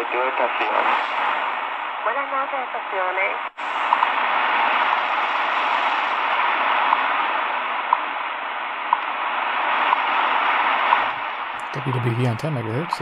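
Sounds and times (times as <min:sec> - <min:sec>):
radio static hiss: 0:00.0 - 0:13.0
time signal ticks: 0:07.9 - 0:08.1, 0:08.9 - 0:09.1, 0:11.6 - 0:13.0.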